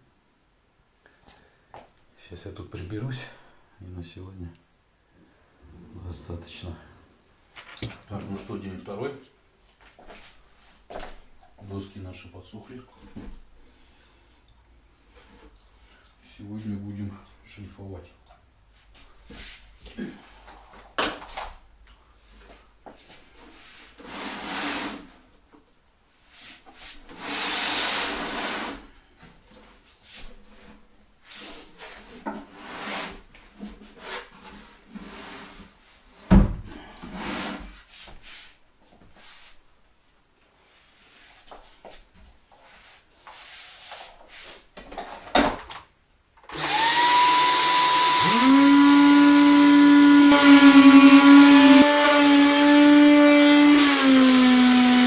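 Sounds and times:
electric sander running: 46.5s - 55.0s.

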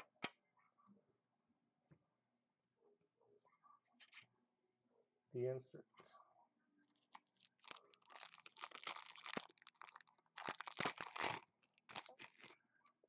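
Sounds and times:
foil wrapper crinkling and tearing: 7.1s - 12.6s.

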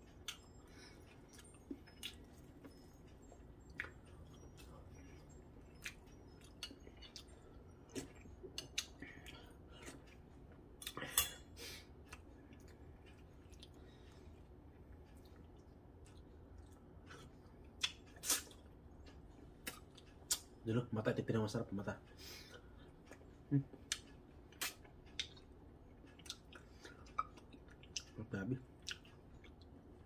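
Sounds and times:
faint chewing: 0.0s - 20.5s, 22.6s - 30.0s
utensils clinking against a dish: 10.9s - 11.6s.

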